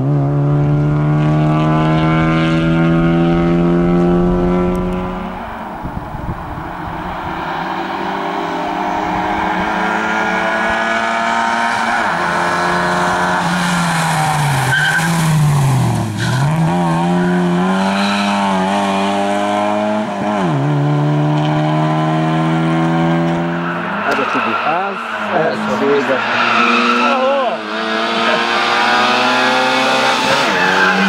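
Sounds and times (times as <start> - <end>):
rally car engine revving: 0.0 - 31.0
tyre squeal: 13.3 - 18.6, 23.5 - 27.6, 30.2 - 31.0.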